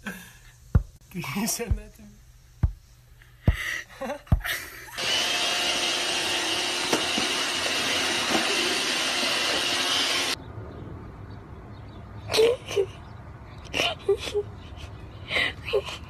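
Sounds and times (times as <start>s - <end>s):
thumps: 0.7s - 1.0s, 2.6s - 4.5s
robot vacuum cleaner whirring: 5.0s - 10.4s.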